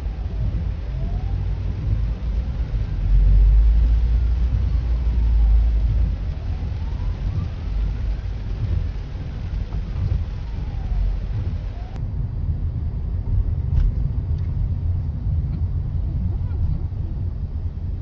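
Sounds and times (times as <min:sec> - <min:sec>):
ambulance siren wailing: 0:00.0 - 0:12.0
low rumble: 0:00.0 - 0:18.0.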